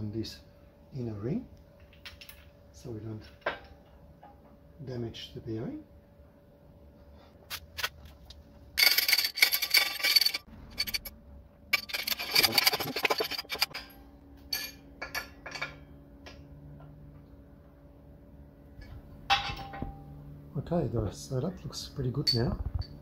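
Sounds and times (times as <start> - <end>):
hydraulic press metal clinks and scraping: 8.8 - 11.1, 11.7 - 15.8.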